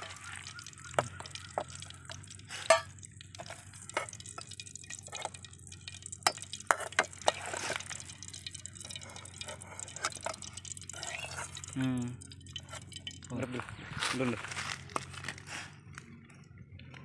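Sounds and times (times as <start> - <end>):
metal ladle scraping metal pan: 2.5 - 5.4, 6.2 - 11.8.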